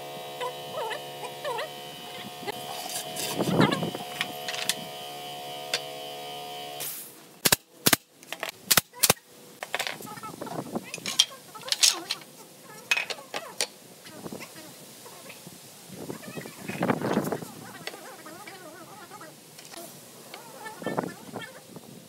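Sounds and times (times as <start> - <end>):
handling of wood: 10.9 - 13.7.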